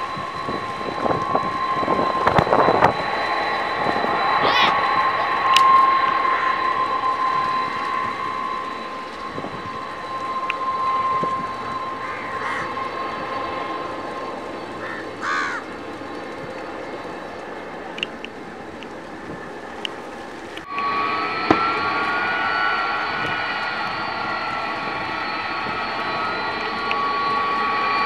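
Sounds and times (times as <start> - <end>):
jet engine whine: 0.0 - 28.0
crow cawing: 12.0 - 12.7, 14.8 - 15.7.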